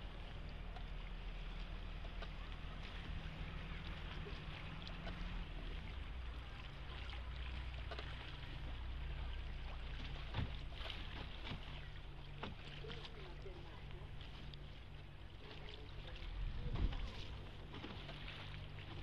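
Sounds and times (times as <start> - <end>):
water lapping against a boat: 0.0 - 19.0.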